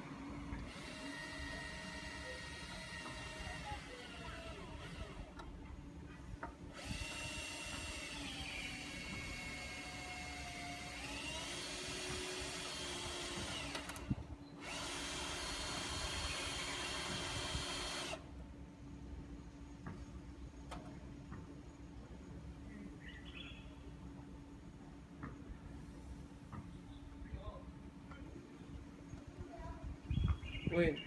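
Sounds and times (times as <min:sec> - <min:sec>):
electric motor whining: 0:00.0 - 0:05.4, 0:06.8 - 0:18.2.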